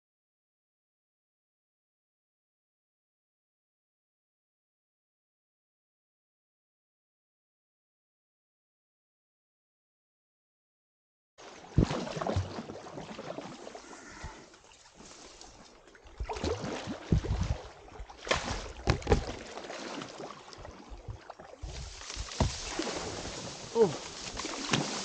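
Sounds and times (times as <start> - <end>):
paddle strokes splashing: 11.4 - 25.0
boat scraping through reeds: 13.2 - 15.9, 21.6 - 25.0.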